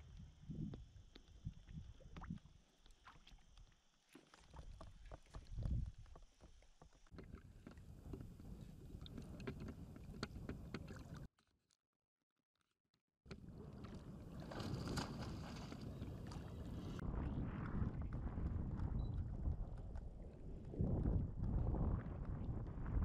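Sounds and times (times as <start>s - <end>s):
water lapping and sloshing: 1.1s - 6.5s, 7.1s - 11.3s, 13.3s - 17.0s.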